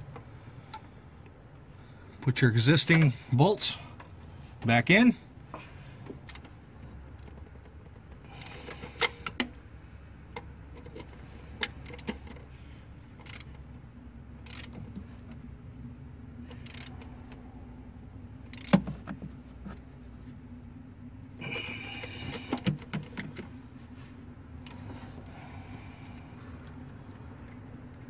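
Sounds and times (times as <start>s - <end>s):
steady low hum: 0.0s - 28.0s
metallic clicks of bolts: 13.2s - 13.5s, 14.4s - 14.8s, 16.6s - 17.1s, 18.5s - 18.8s.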